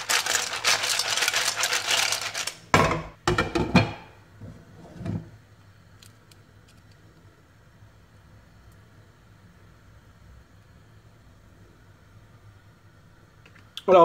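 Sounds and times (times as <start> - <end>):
mussel shells clattering in pan: 0.0 - 2.7
cookware knocks: 2.8 - 4.1.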